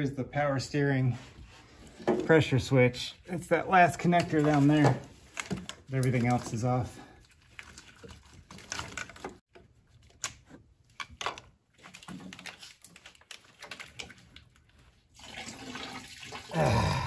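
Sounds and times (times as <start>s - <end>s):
plastic connectors clicking and rustling: 4.0s - 14.9s.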